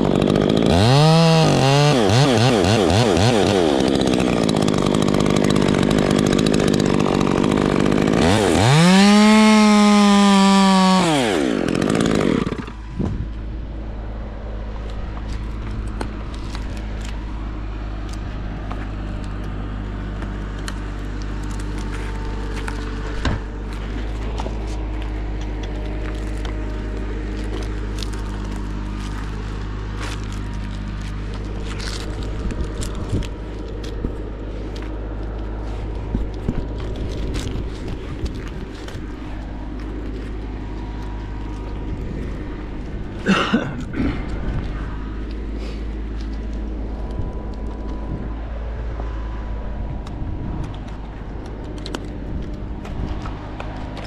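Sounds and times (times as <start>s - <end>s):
chainsaw revving and idling: 0.0s - 54.0s
climbing hardware clicking: 50.0s - 54.0s.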